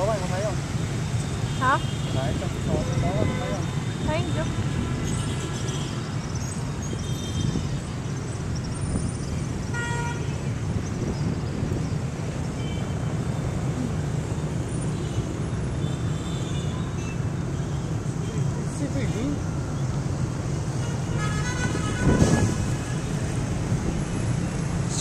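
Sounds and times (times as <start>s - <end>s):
motorbikes passing: 0.0s - 12.5s
horn toots: 20.9s - 23.0s.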